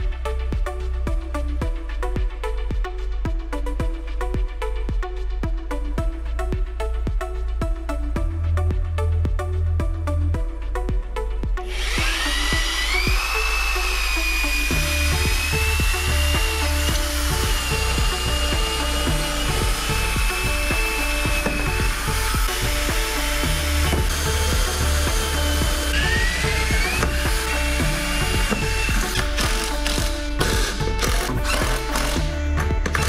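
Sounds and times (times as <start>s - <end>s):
background music with beat: 0.0s - 33.0s
electric drill whining: 11.7s - 33.0s.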